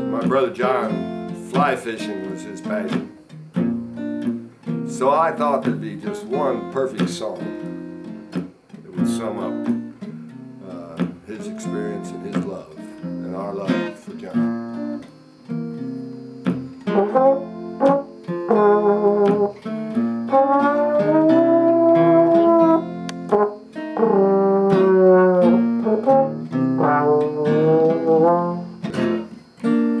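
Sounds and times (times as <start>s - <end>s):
acoustic guitar picked and strummed: 0.0s - 30.0s
trombone notes: 16.8s - 29.3s.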